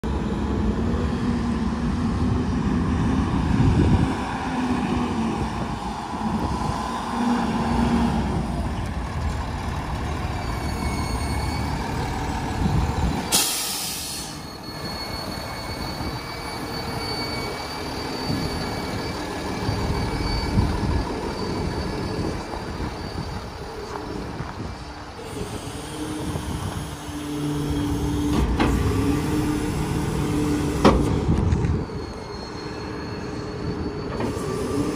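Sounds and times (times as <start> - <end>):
air brakes burst: 13.2 - 19.0, 30.6 - 34.9.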